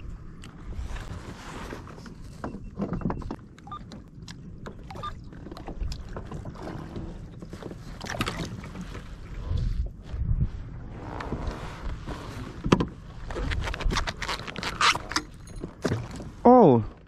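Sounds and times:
water splashing against kayak: 0:00.3 - 0:16.5
wind buffeting microphone: 0:04.1 - 0:14.4.

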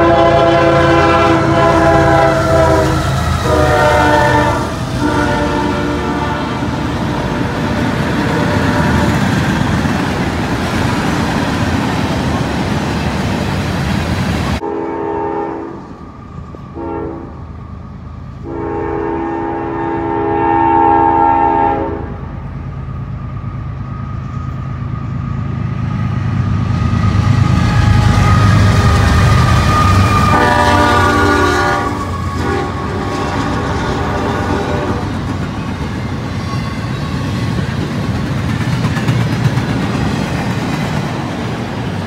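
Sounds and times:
locomotive air horn blasts: 0:00.0 - 0:09.2, 0:14.6 - 0:15.8, 0:16.8 - 0:17.4, 0:18.4 - 0:22.2, 0:27.6 - 0:35.2
freight train rumble and rattle: 0:00.0 - 0:42.0.

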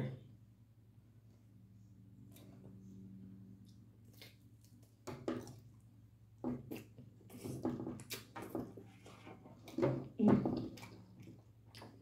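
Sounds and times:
wet chewing and lip-smacking: 0:03.6 - 0:06.0, 0:06.6 - 0:09.9, 0:10.6 - 0:12.0.

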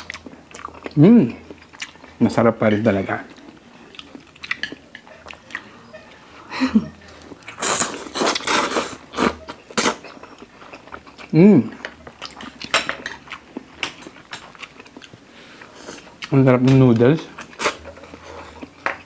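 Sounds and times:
noodles being slurped: 0:07.5 - 0:10.0.

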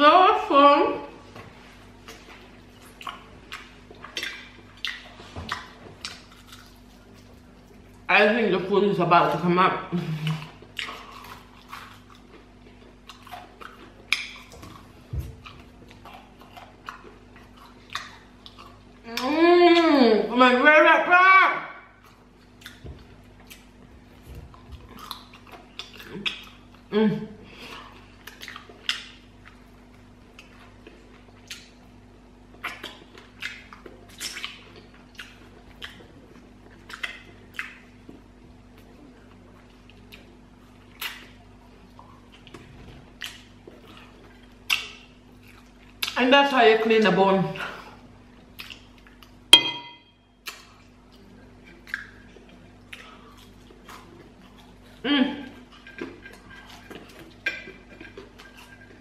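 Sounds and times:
wet mouth eating sounds: 0:01.9 - 0:08.1, 0:10.1 - 0:20.0, 0:21.9 - 0:46.2, 0:47.6 - 0:49.4, 0:50.4 - 0:59.0
gnawing and sucking on bone: 0:50.4 - 0:59.0.

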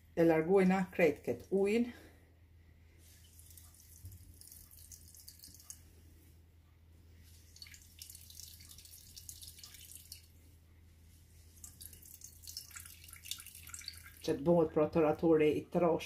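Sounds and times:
juice dripping into a glass bowl: 0:03.2 - 0:05.9, 0:07.5 - 0:10.4, 0:11.6 - 0:14.3.

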